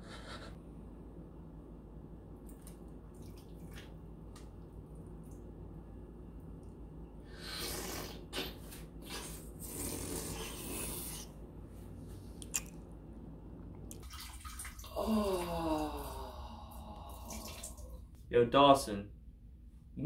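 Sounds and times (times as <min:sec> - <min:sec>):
person slurping: 0:07.3 - 0:11.4
wet mouth clicks: 0:12.4 - 0:12.8.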